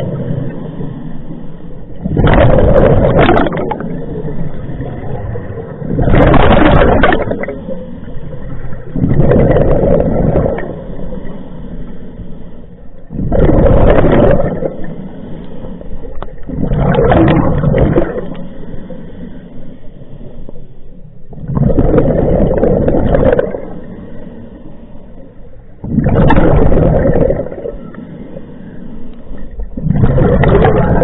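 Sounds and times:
exhaled bubbles bursting underwater: 1.9s - 7.7s, 8.4s - 10.9s, 13.0s - 15.0s, 16.2s - 18.4s, 21.3s - 23.9s, 25.8s - 28.0s, 29.5s - 31.0s.

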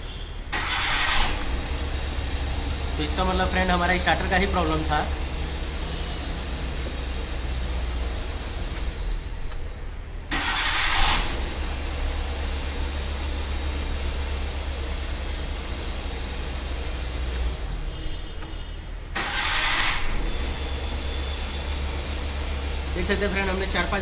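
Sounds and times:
car engine idling: 0.0s - 18.1s, 19.1s - 24.0s
engine starter cranking: 0.5s - 1.7s, 10.3s - 11.6s, 19.1s - 20.4s.

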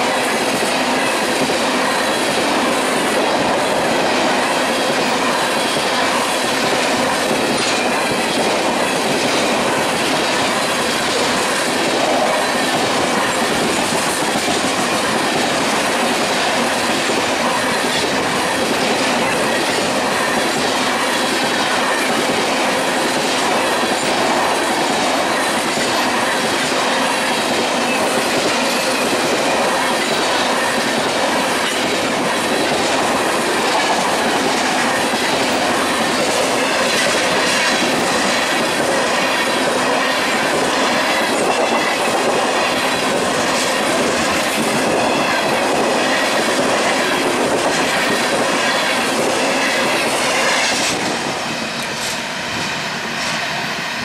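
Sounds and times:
steel wheels on rail: 0.0s - 54.0s.

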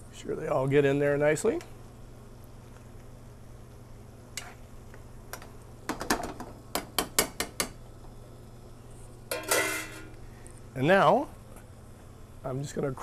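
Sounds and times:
metal spoon clinking on pan: 9.3s - 10.1s.

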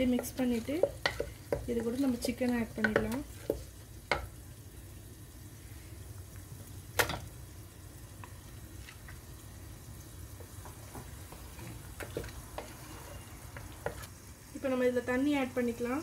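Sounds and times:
spoon knocking against pot: 0.0s - 4.3s
paste cooking in a pot: 0.0s - 16.0s.

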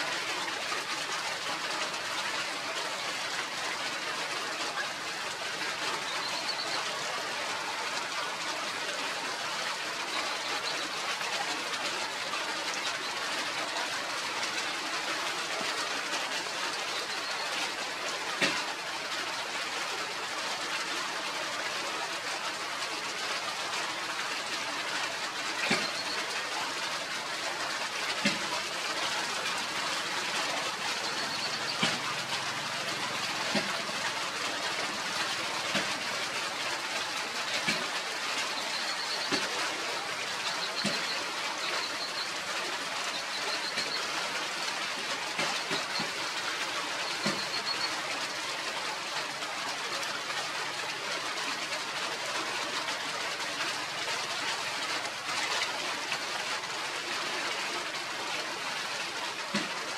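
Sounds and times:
outdoor background noise: 0.0s - 59.9s
faint high chirps: 47.0s - 47.9s.

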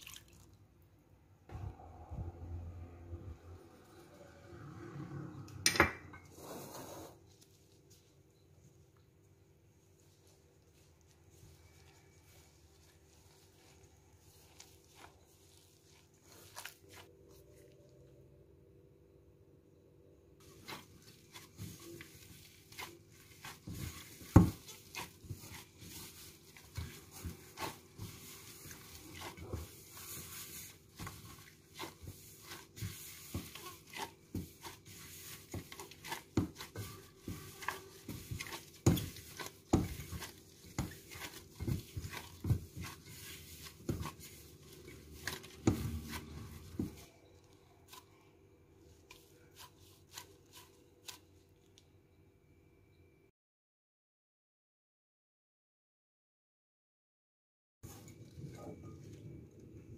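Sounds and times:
dough thumping in metal bowl: 20.6s - 47.1s.

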